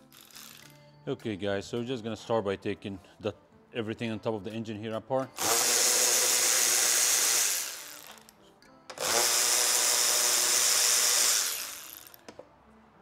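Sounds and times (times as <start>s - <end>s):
electric ratchet spinning: 0.0s - 0.7s, 5.4s - 8.3s, 9.0s - 12.2s.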